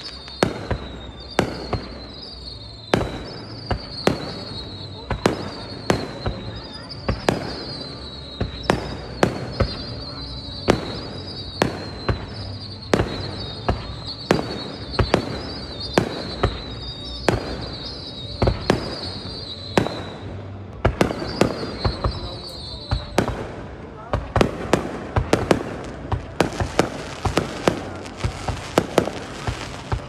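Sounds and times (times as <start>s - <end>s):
high wavering whistle: 0.0s - 23.6s
fireworks bangs: 0.0s - 30.0s.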